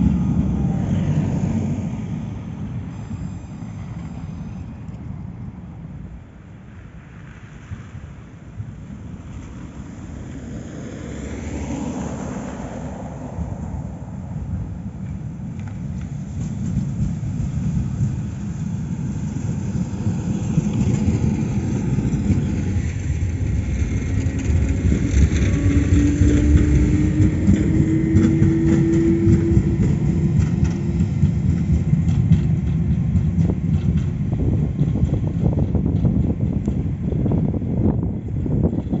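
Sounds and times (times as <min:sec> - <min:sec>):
traction motor whine: 0:00.0 - 0:05.6, 0:19.8 - 0:39.0
tram wheels rumbling on rails: 0:00.0 - 0:39.0.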